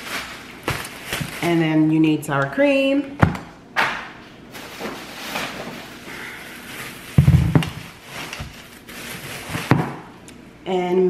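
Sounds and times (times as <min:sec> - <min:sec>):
grocery bags rustling: 0:00.0 - 0:03.0, 0:04.5 - 0:10.1
item set down thud: 0:07.2 - 0:08.5.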